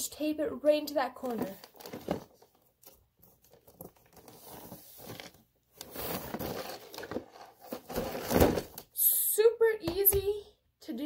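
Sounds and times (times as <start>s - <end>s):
box thump: 7.8s - 8.8s.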